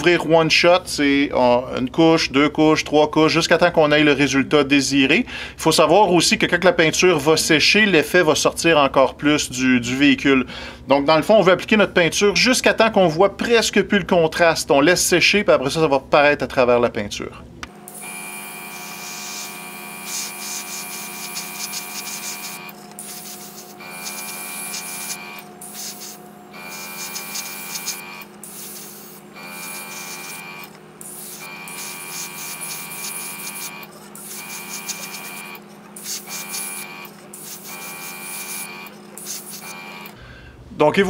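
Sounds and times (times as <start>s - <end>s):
air compressor whine: 17.7s - 40.7s
airbrush hissing: 17.9s - 40.2s.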